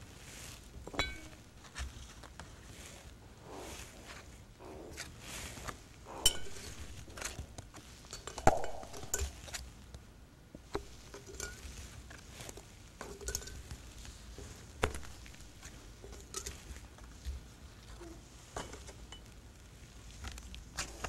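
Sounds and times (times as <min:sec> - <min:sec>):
tea set clinking: 0:00.9 - 0:01.4, 0:06.1 - 0:07.3, 0:08.1 - 0:09.4, 0:13.0 - 0:13.7.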